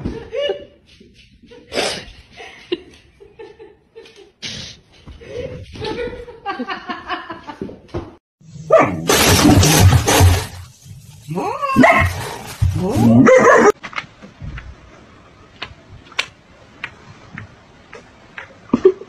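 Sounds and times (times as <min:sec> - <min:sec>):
dog barking and yelping: 0:08.7 - 0:09.1, 0:13.0 - 0:13.8.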